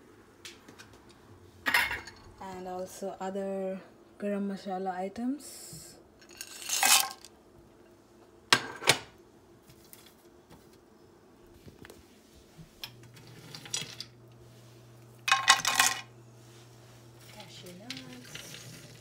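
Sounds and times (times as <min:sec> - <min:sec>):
metal kitchenware clinking: 0:01.7 - 0:02.3.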